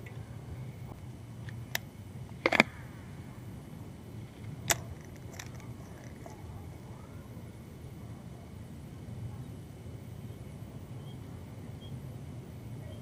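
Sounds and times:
faint low hum: 0.0 - 13.0
fishing reel clicks: 4.6 - 6.4.

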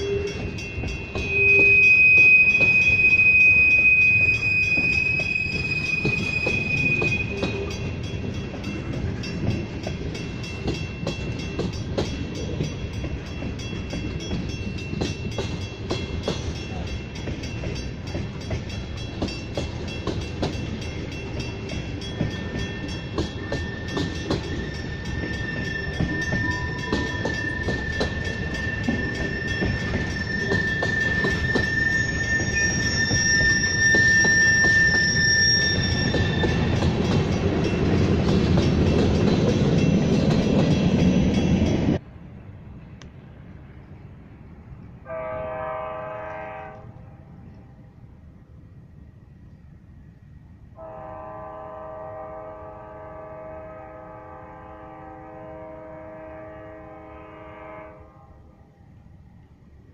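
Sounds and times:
high wheel squeal: 0.0 - 8.1, 22.2 - 37.9
wheels clicking over rail joints: 0.0 - 42.0
freight train rolling: 0.0 - 59.9.

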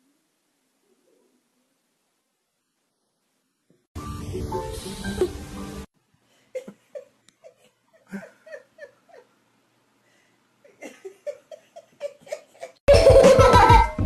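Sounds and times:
person giggling: 6.6 - 9.4, 10.6 - 14.0
loud music: 12.9 - 14.0.

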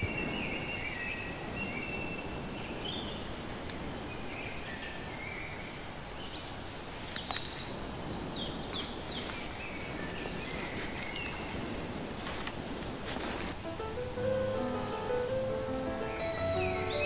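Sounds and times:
steady background hiss: 0.0 - 17.0
small birds chirping: 6.2 - 11.6.

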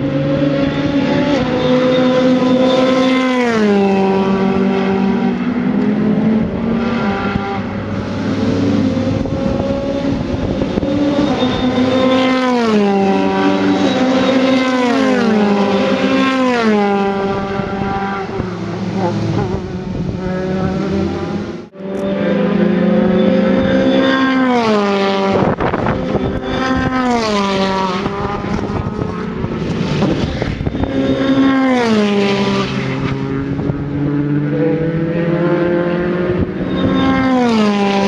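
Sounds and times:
race car engine at high revs: 0.0 - 38.0.

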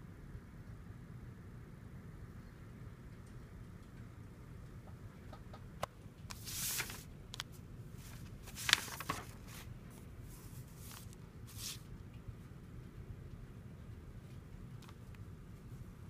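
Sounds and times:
faint low hum: 0.0 - 16.0
paper rustling and pen clicks: 6.3 - 9.7, 10.3 - 11.9.

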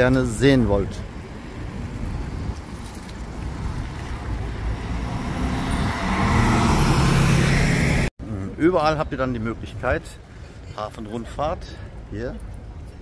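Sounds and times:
low traffic rumble: 0.0 - 13.0
vehicle engine passing: 3.9 - 8.1.

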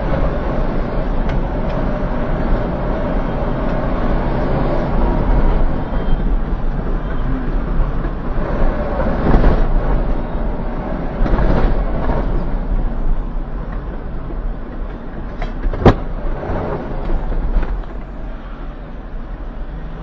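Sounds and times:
rushing noise: 0.0 - 20.0
vehicle engine rumbling: 0.0 - 20.0.

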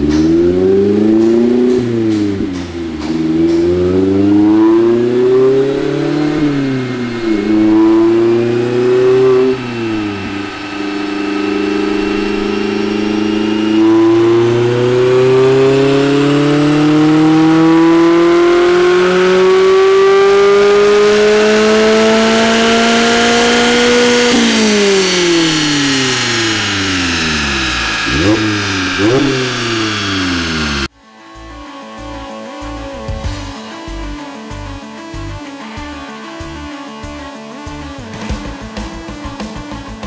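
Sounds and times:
car engine revving on a dyno: 0.0 - 30.9.

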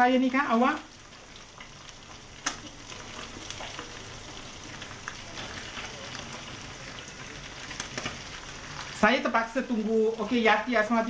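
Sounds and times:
fish sizzling in hot oil: 0.0 - 11.0
oil crackling pops: 1.0 - 9.0.

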